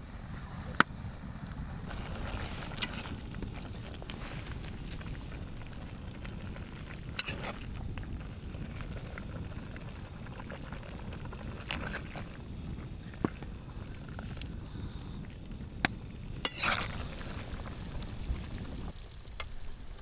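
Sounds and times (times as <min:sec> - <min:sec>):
broth bubbling in a cauldron: 0:00.0 - 0:20.0.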